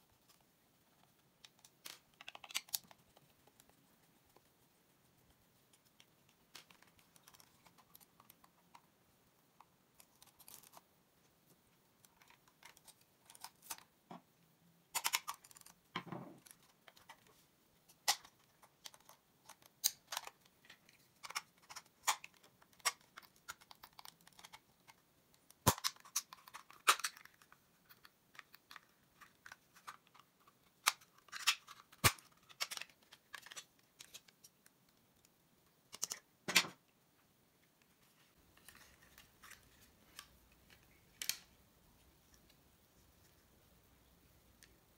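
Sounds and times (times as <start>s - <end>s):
sharp plastic snaps: 25.4s - 27.4s
plastic clicks and snaps: 38.6s - 41.5s.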